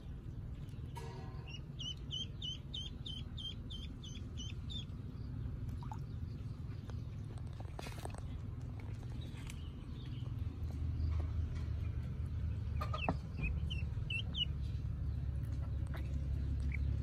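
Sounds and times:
duckling peeping: 0:00.6 - 0:06.9, 0:12.5 - 0:17.0.

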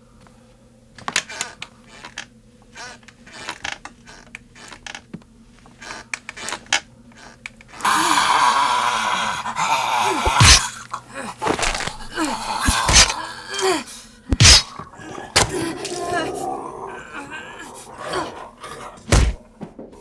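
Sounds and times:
irregular creaks and clicks: 0:01.0 - 0:07.9.

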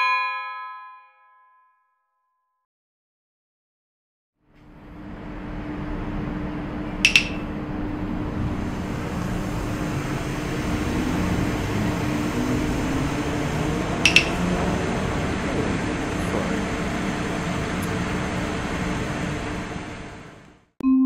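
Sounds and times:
city street hum: 0:04.4 - 0:20.7
sharp double clicks with ring: 0:07.1 - 0:07.4, 0:14.1 - 0:14.4.

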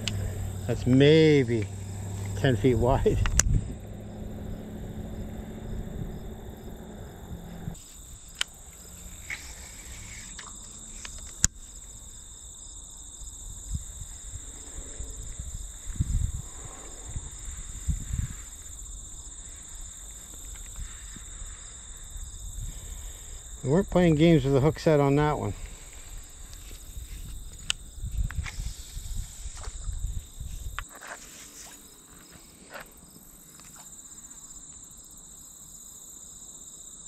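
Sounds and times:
low hum: 0:00.0 - 0:11.8
low bumps: 0:00.0 - 0:12.2, 0:13.4 - 0:21.4
crickets and insects trilling: 0:00.0 - 0:37.0.

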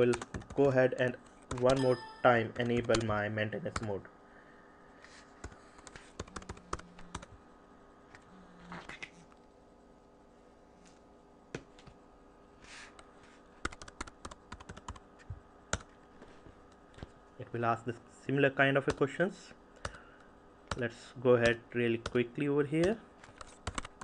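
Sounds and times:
computer keyboard typing: 0:00.0 - 0:00.8, 0:01.5 - 0:03.9, 0:05.4 - 0:07.4, 0:13.6 - 0:15.0, 0:22.8 - 0:24.0.

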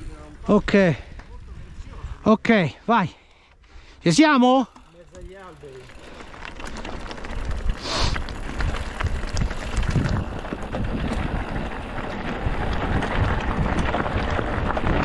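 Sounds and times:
wind buffeting microphone: 0:00.0 - 0:02.5, 0:06.4 - 0:15.0
bike rattling: 0:00.0 - 0:15.0
bike tyres rumbling on dirt: 0:04.1 - 0:15.0.

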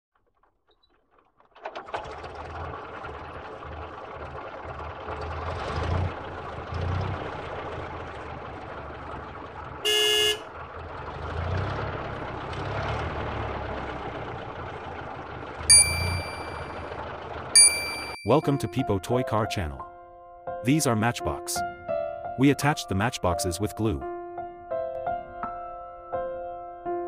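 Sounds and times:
toy horn toot: 0:09.9 - 0:10.4.

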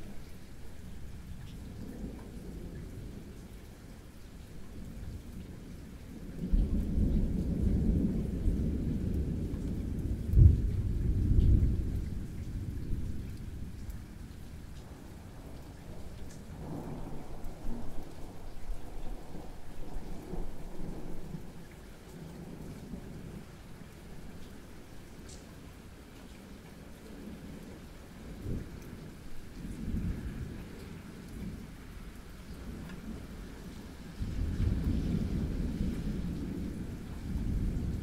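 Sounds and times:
steady rain: 0:00.0 - 0:38.0
thunder rumbling: 0:06.4 - 0:21.6, 0:34.1 - 0:38.0.

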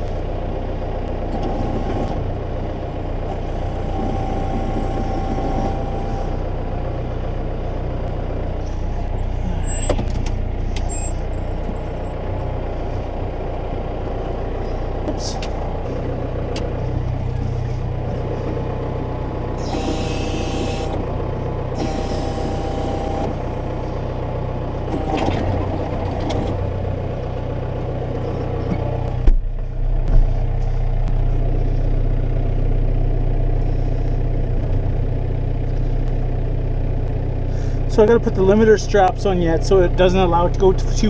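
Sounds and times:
tractor engine running: 0:00.0 - 0:41.0
whine: 0:03.3 - 0:06.4, 0:08.0 - 0:24.0.

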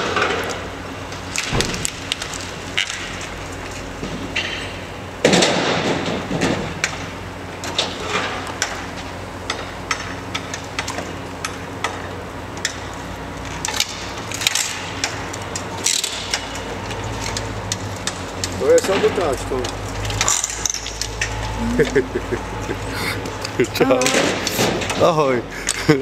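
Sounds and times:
sharp knocks and cracks: 0:01.2 - 0:07.0
window glass crashing: 0:01.4 - 0:03.2.

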